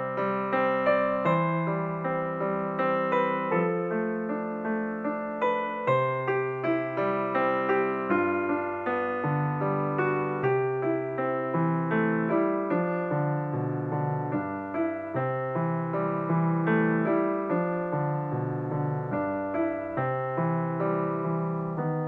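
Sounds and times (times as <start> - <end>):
piano music: 0.0 - 22.0.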